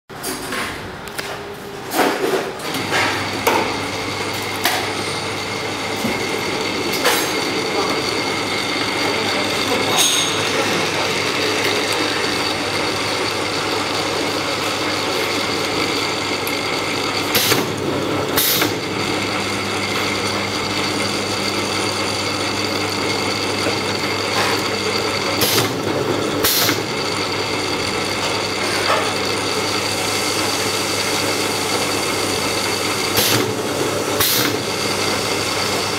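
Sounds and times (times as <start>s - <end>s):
machine motor hum: 0.5s - 35.9s
high whine: 2.7s - 15.6s.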